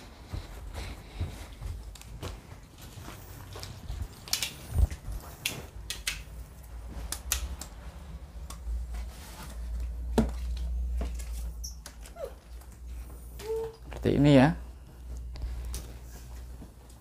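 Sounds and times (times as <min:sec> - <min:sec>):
footsteps on tiled floor: 0:00.0 - 0:05.8, 0:14.6 - 0:17.0.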